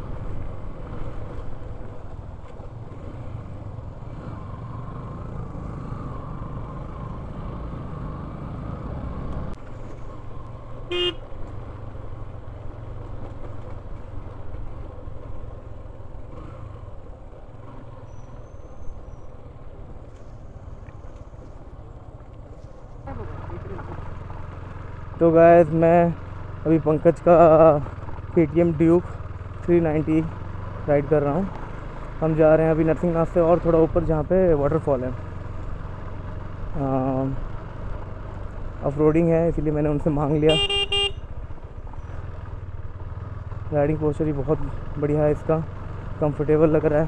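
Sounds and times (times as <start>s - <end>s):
motorcycle engine: 0.0s - 47.0s
motorcycle horn toot: 10.9s - 11.3s, 40.5s - 41.3s.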